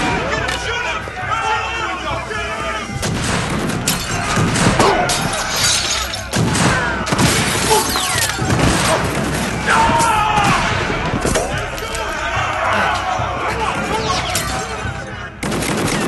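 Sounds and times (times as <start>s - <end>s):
music: 0.0s - 16.0s
people shouting: 0.0s - 16.0s
glass shattering: 3.0s - 8.9s, 14.0s - 14.9s
bangs and crashes: 3.0s - 15.0s.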